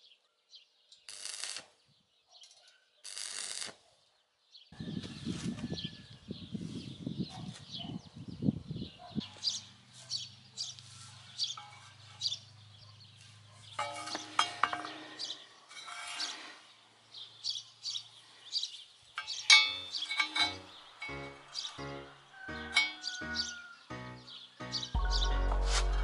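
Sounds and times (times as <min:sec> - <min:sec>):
small birds chirping: 0:03.8 - 0:25.4
hoe scraping in soil: 0:09.9 - 0:17.3
sharp metal clink: 0:13.8 - 0:15.0, 0:19.2 - 0:21.4.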